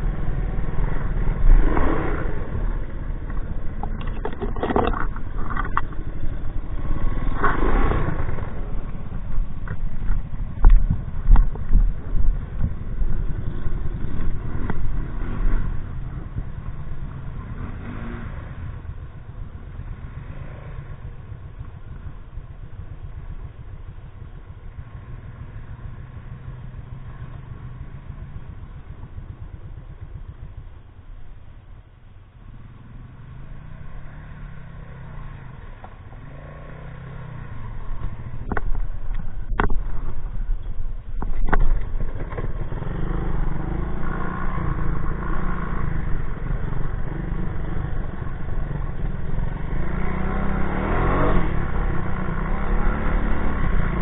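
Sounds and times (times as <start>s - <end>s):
three-wheeler engine revving: 0.0s - 30.8s, 32.4s - 54.0s
sharp knocks and clatter: 3.2s - 6.2s, 38.4s - 40.2s, 41.2s - 42.6s.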